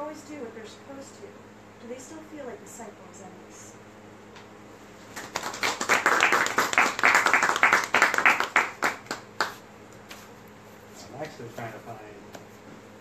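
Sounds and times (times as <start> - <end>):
audience clapping: 5.1 - 9.6.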